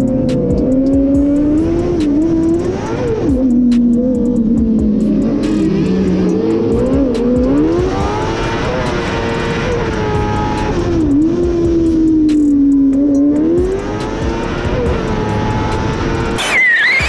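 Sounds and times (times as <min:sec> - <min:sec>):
racing engine revving: 0:00.0 - 0:17.0.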